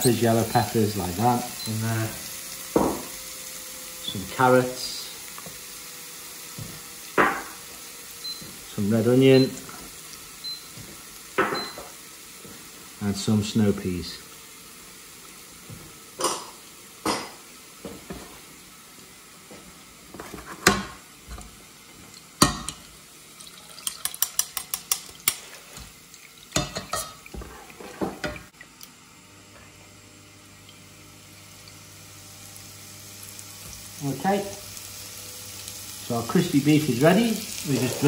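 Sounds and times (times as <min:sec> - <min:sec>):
oil sizzling: 0:00.0 - 0:38.0
metal spoon clinking on saucepan: 0:23.8 - 0:25.4.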